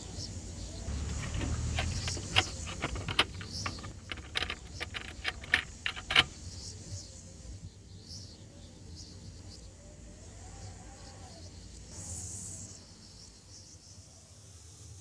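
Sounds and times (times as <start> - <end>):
vehicle controls clicking and rattling: 0.9 - 6.4.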